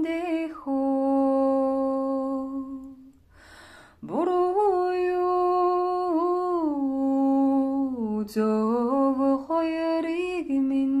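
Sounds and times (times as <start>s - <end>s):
woman singing unaccompanied: 0.0s - 3.2s, 4.0s - 11.0s
soft breath: 3.2s - 4.0s.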